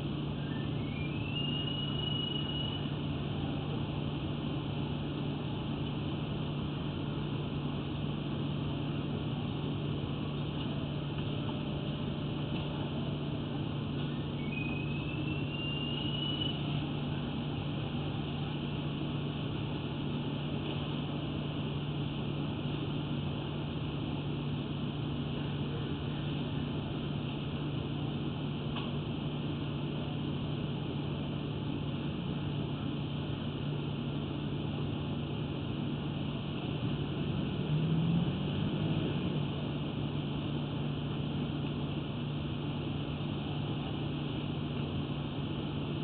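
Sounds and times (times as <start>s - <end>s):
mechanical hum with hiss: 0.0s - 46.0s
rising whistle-like tone: 0.3s - 3.0s, 14.0s - 16.8s.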